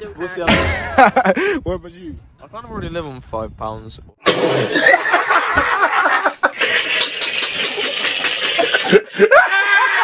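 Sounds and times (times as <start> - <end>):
man laughing hysterically: 0.7 - 1.5, 4.7 - 10.0.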